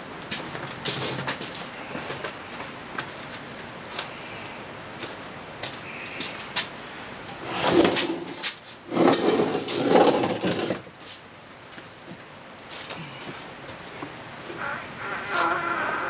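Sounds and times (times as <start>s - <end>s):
metal rattling and scraping: 7.4s - 10.8s.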